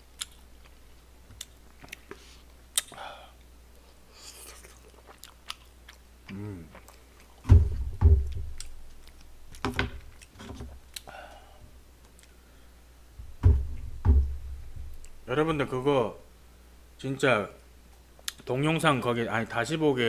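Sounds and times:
chewing with wet mouth smacks: 4.4s - 7.4s
heavy low bumps: 7.5s - 8.6s, 13.2s - 15.1s.

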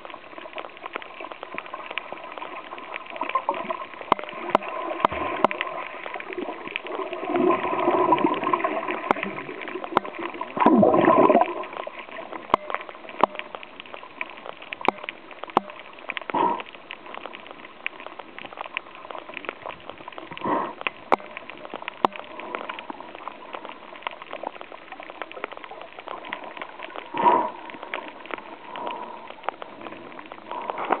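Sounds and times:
underwater crackle of clicks: 0.0s - 31.0s
gurgling bubble bursts: 3.5s - 13.4s.

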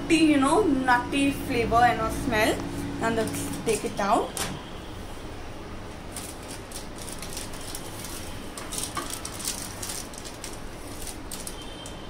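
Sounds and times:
steady low hum: 0.0s - 12.0s
rustling: 6.1s - 12.0s.

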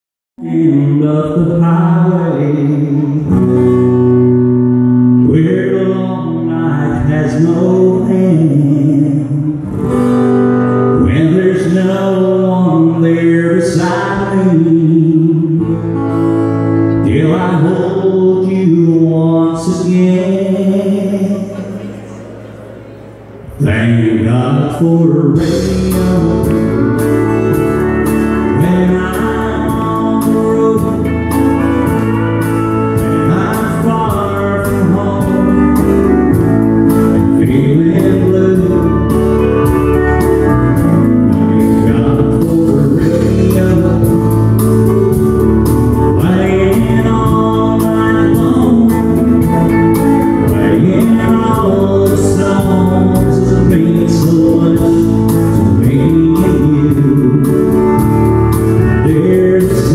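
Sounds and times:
pedal steel guitar: 0.4s - 59.9s
strummed acoustic guitar: 0.4s - 59.9s
drums: 24.8s - 59.9s.

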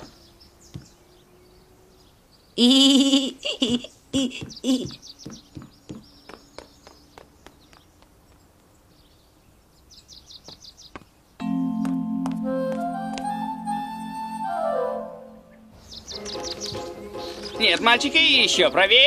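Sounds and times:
high-pitched cartoon cry: 2.6s - 4.9s
music: 11.4s - 19.0s
run of clicks: 16.1s - 16.9s.

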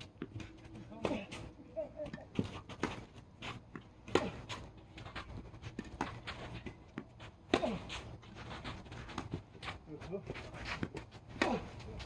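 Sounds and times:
tennis ball bouncing: 0.0s - 9.8s
footsteps on court: 0.0s - 12.0s
tennis racket striking ball: 2.4s - 9.4s, 10.7s - 12.0s.

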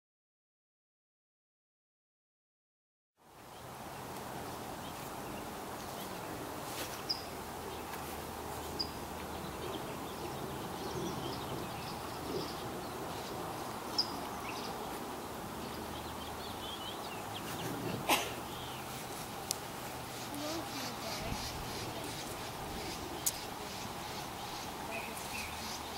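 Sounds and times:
outdoor background noise: 3.2s - 25.9s
bird warbling call: 20.1s - 25.9s.

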